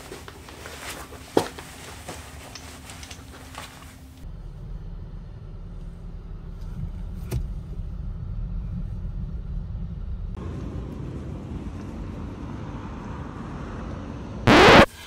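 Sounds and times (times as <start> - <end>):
car engine low rumble: 4.0 - 14.5.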